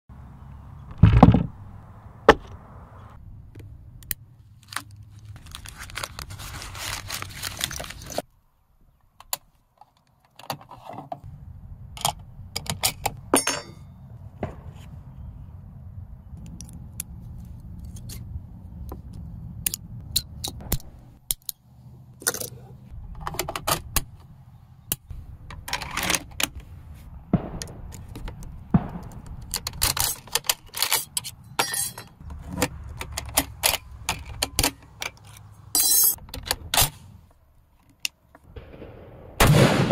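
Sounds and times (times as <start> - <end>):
paper wrapping rustling: 4.6 - 8.3.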